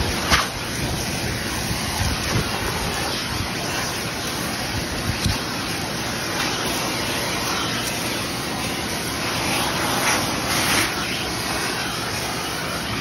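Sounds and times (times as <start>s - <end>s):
air rushing through hose: 0.0s - 13.0s
vacuum running: 0.0s - 13.0s.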